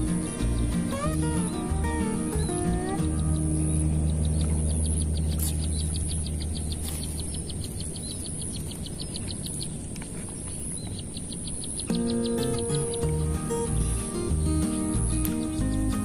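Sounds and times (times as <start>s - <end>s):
low bass music: 0.0s - 7.8s, 11.9s - 16.0s.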